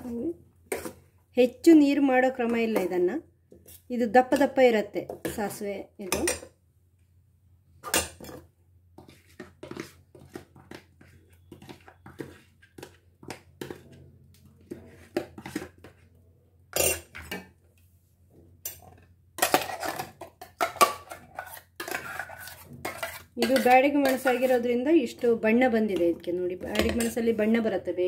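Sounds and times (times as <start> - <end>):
steel spoon scraping and clinking: 21.1 - 24.6.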